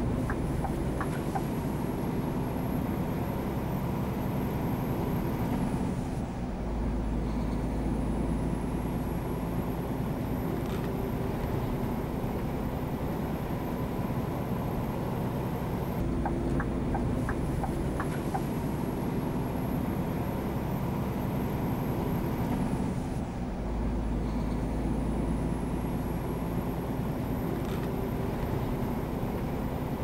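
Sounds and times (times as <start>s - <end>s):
truck engine drone: 0.0s - 30.0s
tyre and road noise: 15.6s - 19.8s.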